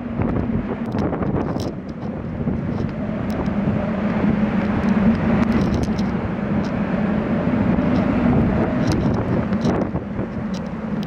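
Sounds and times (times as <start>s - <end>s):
wind and rain rushing: 0.0s - 11.0s
small clicks: 2.7s - 6.8s, 8.8s - 11.0s.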